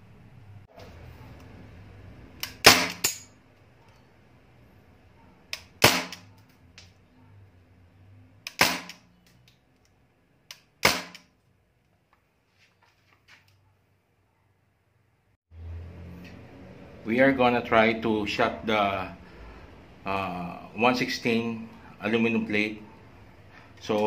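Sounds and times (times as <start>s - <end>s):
bb rifle shots popping: 2.4s - 3.1s, 5.6s - 6.3s, 8.5s - 9.0s, 10.8s - 11.3s.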